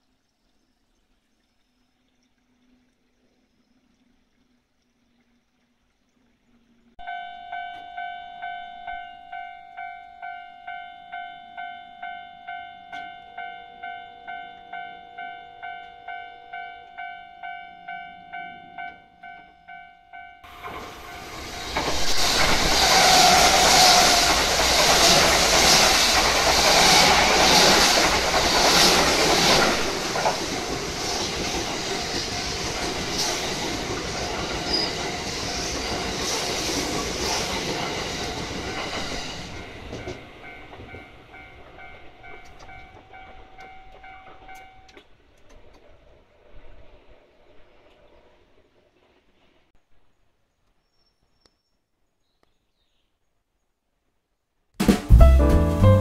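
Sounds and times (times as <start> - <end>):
level crossing bell ringing: 7.0 - 20.5
train wheels rushing on rails: 20.5 - 47.0.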